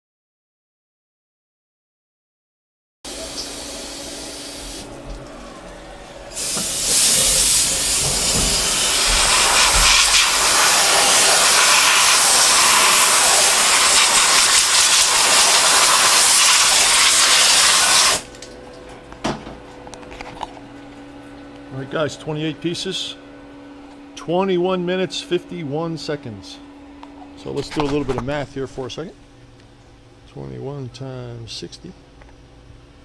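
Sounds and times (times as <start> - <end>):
compressed air hiss: 3.1 - 4.9, 6.3 - 18.3
steady machine hum: 3.1 - 33.0.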